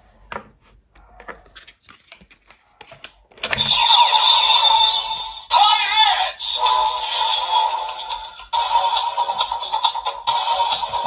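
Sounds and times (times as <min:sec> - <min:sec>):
toy belt electronic sound effect: 0:03.6 - 0:11.0.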